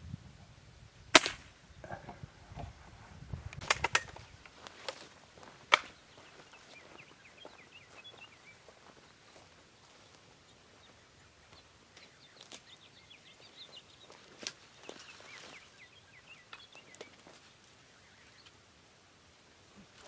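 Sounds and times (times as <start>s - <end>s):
air rifle shot: 1.1s - 1.6s
footsteps through dry brush: 2.8s - 18.6s
bird chirping: 3.8s - 18.7s.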